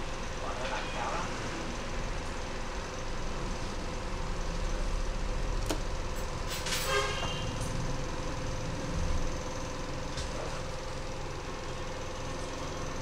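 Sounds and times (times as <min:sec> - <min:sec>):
short horn toot: 0:06.8 - 0:07.6.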